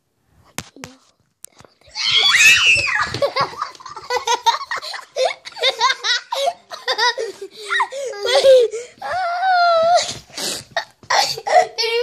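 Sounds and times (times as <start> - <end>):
woman shrieking: 1.9 - 3.2.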